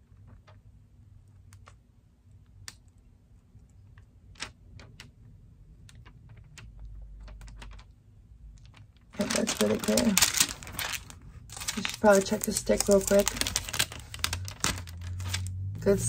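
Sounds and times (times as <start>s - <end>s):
plastic film ticking and crackling: 5.8s - 15.7s.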